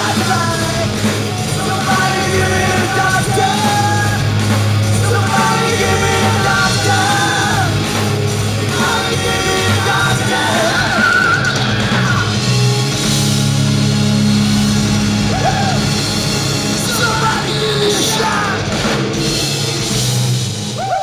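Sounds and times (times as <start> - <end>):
man yelling lead vocal: 0.0 - 12.6, 15.2 - 16.1, 16.7 - 18.9
hard rock band playing: 0.0 - 21.0.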